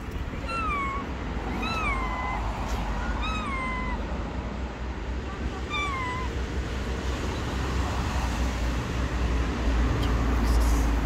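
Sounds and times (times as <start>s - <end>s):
outdoor background rumble and hiss: 0.0s - 11.0s
cat meowing: 0.3s - 4.1s, 5.4s - 6.4s.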